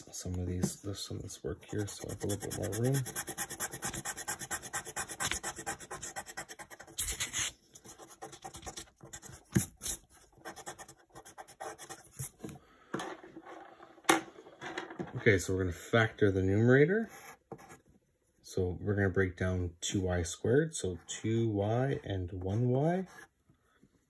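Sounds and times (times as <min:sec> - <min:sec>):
eraser rubbing on paper: 0:01.7 - 0:12.3.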